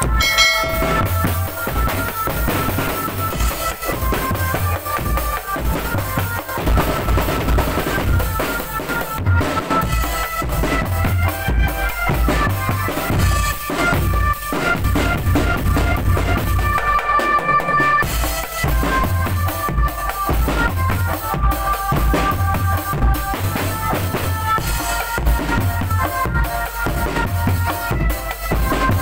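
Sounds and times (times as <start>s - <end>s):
high melodic held notes: 0.0s - 2.2s
bass drums steady beat: 0.0s - 2.6s.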